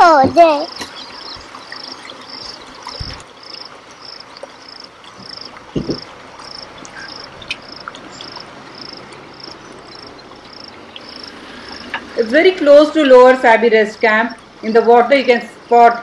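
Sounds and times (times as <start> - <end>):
faint outdoor hiss: 0.0 - 16.0
insect chirping: 0.0 - 16.0
soft low thumps: 5.2 - 10.9.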